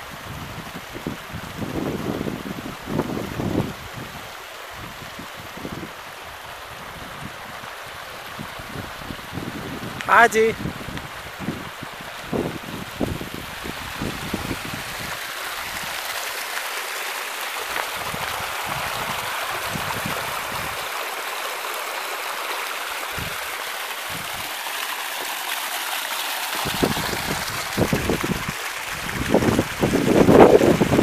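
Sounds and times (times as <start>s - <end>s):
water running in channel: 0.0s - 31.0s
wind buffeting microphone: 0.1s - 16.0s, 17.8s - 20.9s, 23.1s - 23.5s, 24.1s - 24.5s, 26.6s - 31.0s.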